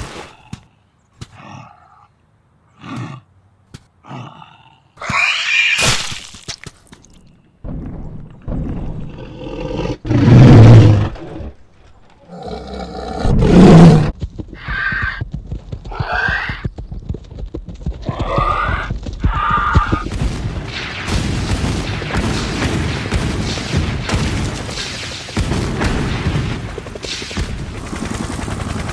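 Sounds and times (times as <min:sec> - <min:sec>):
dinosaur roars: 0:12.2 - 0:14.1
explosion booms: 0:20.0 - 0:26.7
rapid gunfire: 0:20.0 - 0:28.9.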